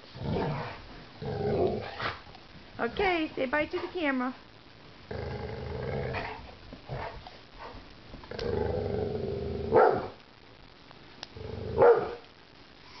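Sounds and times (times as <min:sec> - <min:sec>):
puppies growling: 0:05.1 - 0:07.2, 0:08.3 - 0:09.8
puppy barking: 0:09.8 - 0:10.1, 0:11.8 - 0:12.2.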